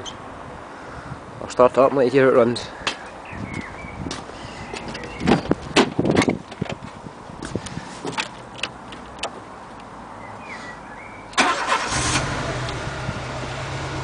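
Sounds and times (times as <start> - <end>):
car engine cranking and idling roughly: 11.4 - 14.0.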